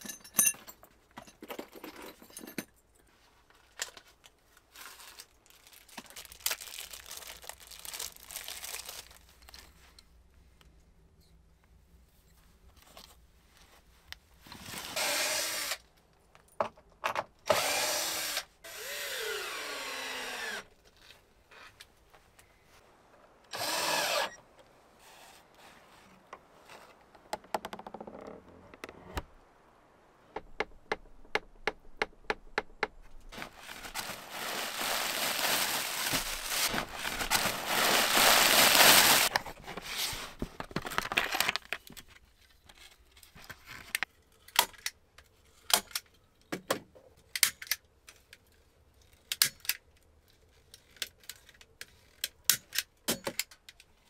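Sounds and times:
drill driving screws: 15.0 - 15.8, 17.5 - 20.6, 23.5 - 24.4
loud scraping and rustling: 33.3 - 41.5.

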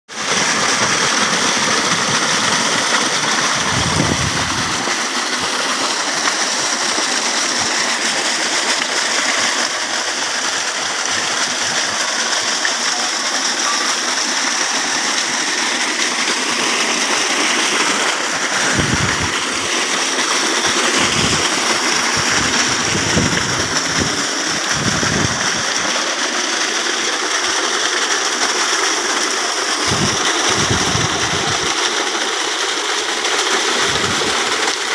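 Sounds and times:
water gushing from pipe: 0.1 - 34.9
water splashing into basin: 0.2 - 26.1.

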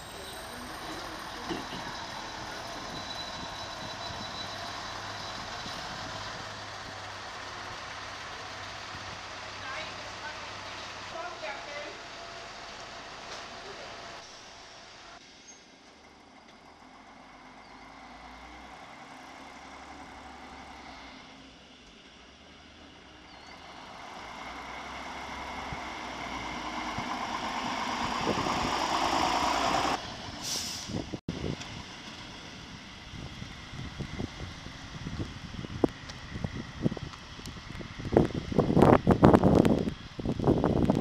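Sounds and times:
diesel railbus engine running: 0.0 - 41.0
wind on microphone: 28.0 - 29.0, 33.0 - 41.0
brief hiss: 30.4 - 31.0.

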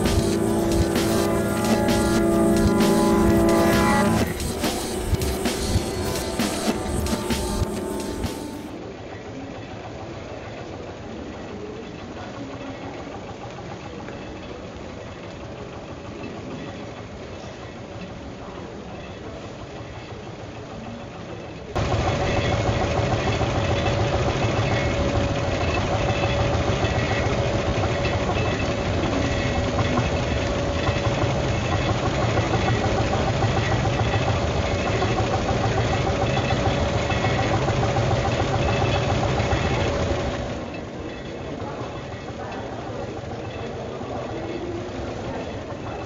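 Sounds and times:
steady machine drone: 0.0 - 9.0, 21.8 - 46.0.

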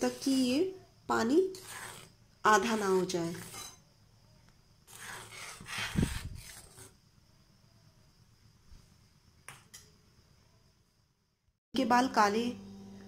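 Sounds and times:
spoon stirring paste in metal pan: 1.2 - 3.8.

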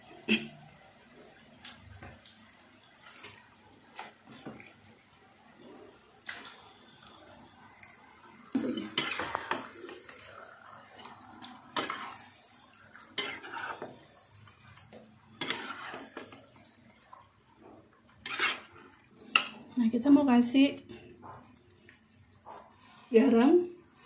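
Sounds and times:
metal spatula scraping a wok: 8.9 - 10.2, 11.7 - 14.6, 15.4 - 16.4, 18.2 - 19.5.

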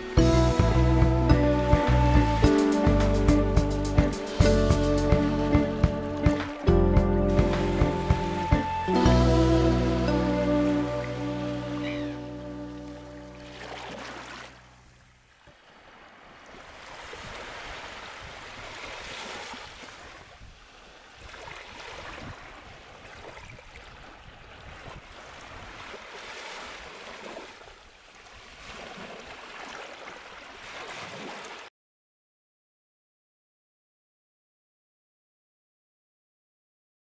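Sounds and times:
music track: 0.0 - 13.6
waves breaking and washing in: 0.0 - 31.7.

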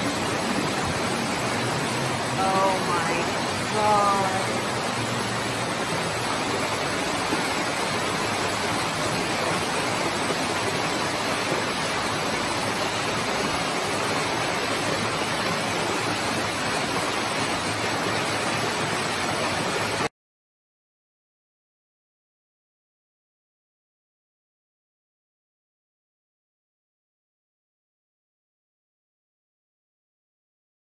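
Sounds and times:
floodwater gushing over a step: 0.0 - 20.1.

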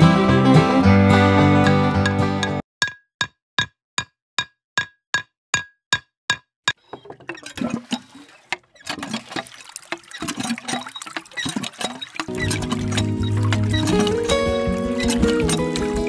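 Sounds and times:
water trickling into a pond: 7.3 - 16.0.

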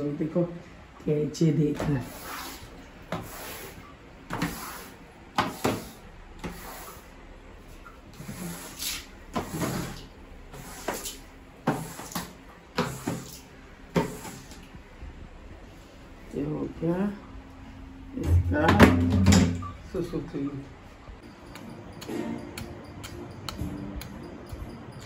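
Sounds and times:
wet mop swishing on floor: 1.8 - 7.1, 8.2 - 14.7.

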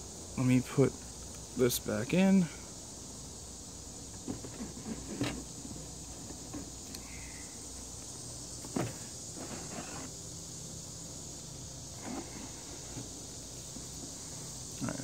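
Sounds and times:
crickets chirring: 0.0 - 15.0
knocks on cardboard box: 8.6 - 9.7.

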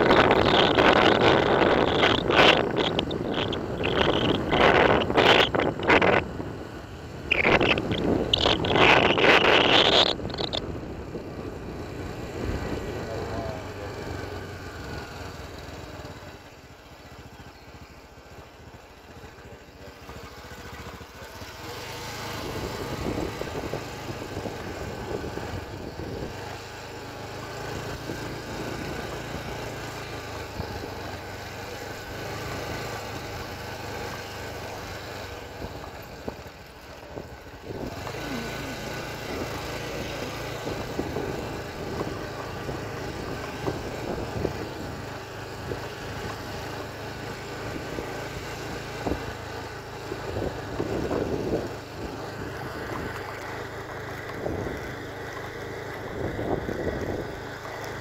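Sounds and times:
motorcycle engine running: 0.0 - 58.0
steady noisy rush: 7.3 - 10.6.

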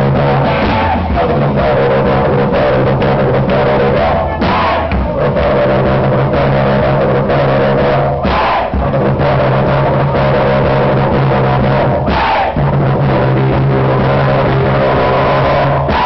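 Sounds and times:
bass guitar: 0.0 - 16.0
drums: 0.0 - 16.0
person singing into microphone: 0.0 - 16.0.

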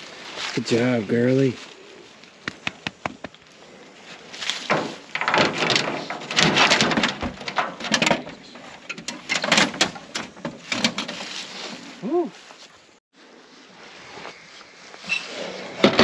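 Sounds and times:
dog claws scrabbling on metal: 4.7 - 11.2.

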